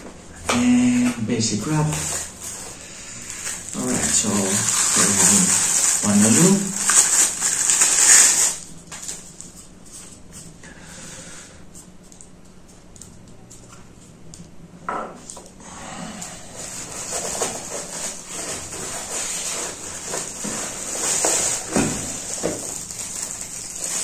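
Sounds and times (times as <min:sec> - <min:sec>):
plastic wrap crinkling: 0:01.8 - 0:10.2, 0:16.5 - 0:24.0.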